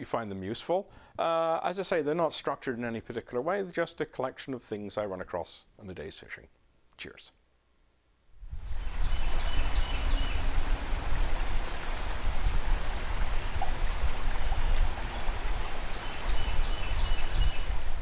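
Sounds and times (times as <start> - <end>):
river water flowing: 8.6 - 18.0.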